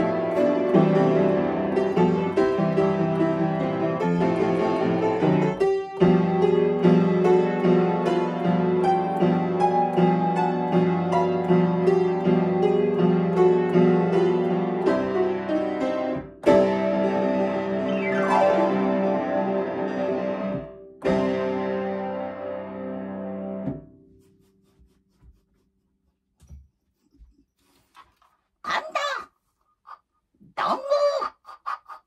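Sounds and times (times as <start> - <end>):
upright piano playing: 0.0 - 23.9
piano falling glide: 16.6 - 23.8.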